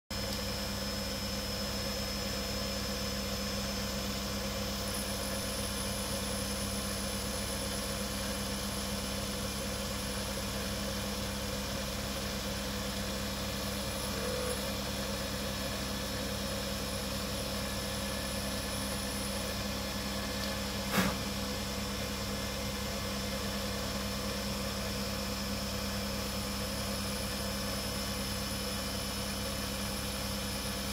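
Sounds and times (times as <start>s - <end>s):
metal lathe humming: 13.4s - 16.2s.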